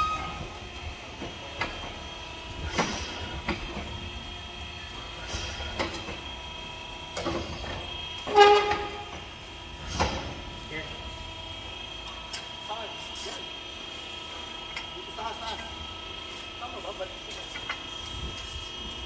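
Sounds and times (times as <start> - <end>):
ringing clank with squeal: 0.0 - 0.6, 7.4 - 9.2.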